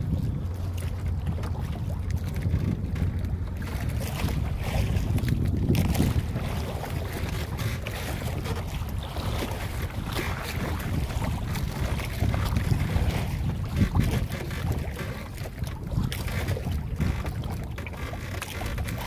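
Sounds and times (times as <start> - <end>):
water rushing along boat hull: 0.0 - 19.0
wind buffeting microphone: 0.0 - 19.0.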